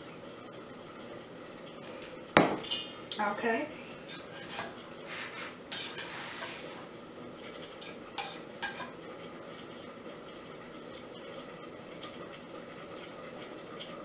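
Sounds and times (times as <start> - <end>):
metal spoon scraping a pot: 4.0 - 6.7, 7.8 - 8.9.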